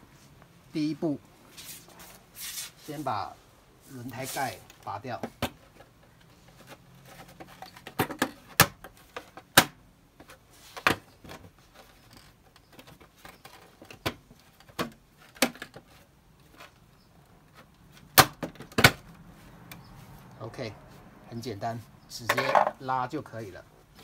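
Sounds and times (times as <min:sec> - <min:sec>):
faint rubbing: 0:01.4 - 0:04.8.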